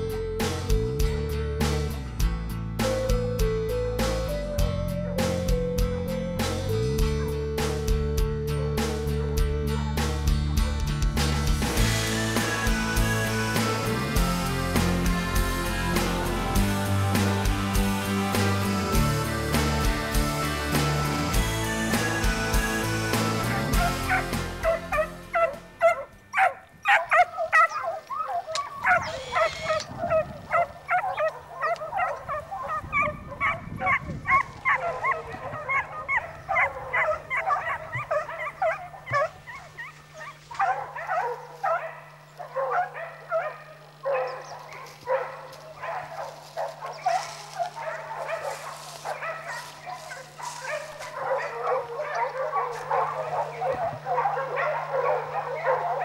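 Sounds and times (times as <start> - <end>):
hounds baying and yelping: 17.4 - 56.0.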